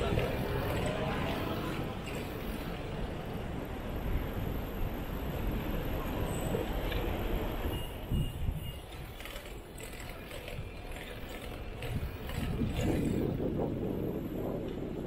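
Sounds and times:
wind and road noise rumble: 0.0s - 15.0s
faint short high beeps: 7.7s - 9.0s.

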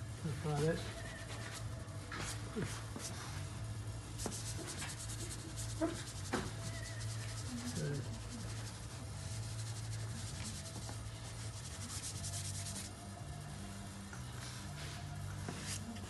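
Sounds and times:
steady low hum: 0.0s - 16.0s
chalk scratching on paper: 0.5s - 3.4s, 4.2s - 13.0s, 15.5s - 15.8s.

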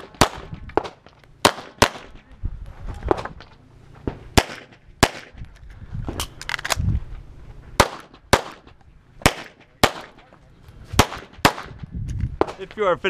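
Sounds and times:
pistol shots: 0.0s - 2.2s, 4.4s - 5.4s, 7.8s - 10.2s, 11.0s - 11.8s.

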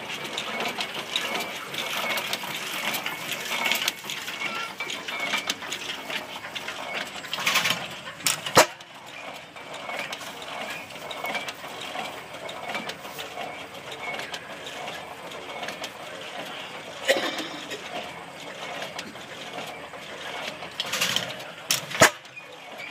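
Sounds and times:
stationary engine valve gear clattering: 0.0s - 22.9s
sharp engine knocks: 0.4s - 12.0s, 18.8s - 22.4s.

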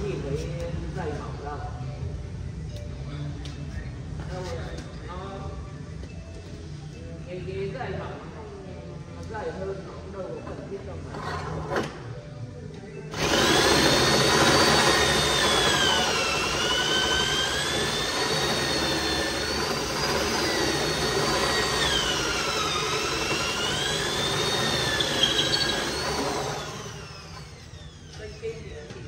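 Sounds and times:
electric drill boring into wood: 13.1s - 28.2s.

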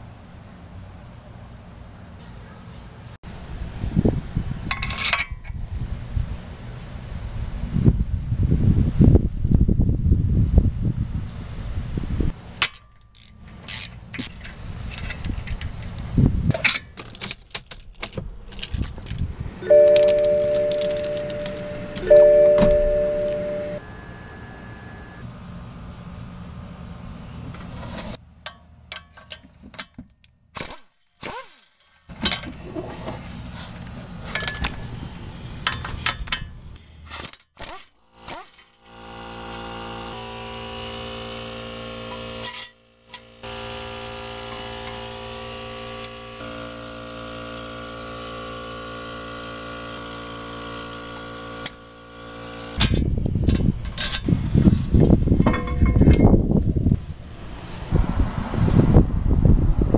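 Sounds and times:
metal tools clicking and knocking: 4.7s - 5.6s, 12.6s - 22.6s, 28.4s - 30.3s, 34.3s - 34.8s, 35.6s - 38.8s, 52.8s - 54.3s, 55.0s - 56.5s
brake rotor rough rumble: 12.2s - 29.0s, 32.4s - 37.0s, 52.6s - 59.9s
steady machine hum: 18.3s - 28.9s, 38.0s - 57.8s.

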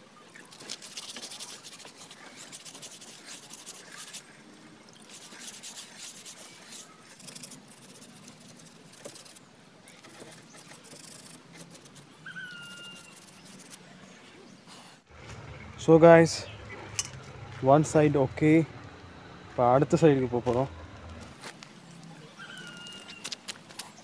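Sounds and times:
scrubber rubbing wet wheel: 0.7s - 13.9s.

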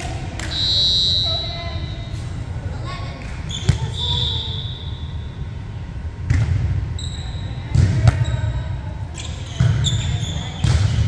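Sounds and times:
sneaker squeaks on hardwood: 9.2s - 11.0s
volleyball smack: 10.6s - 11.0s.

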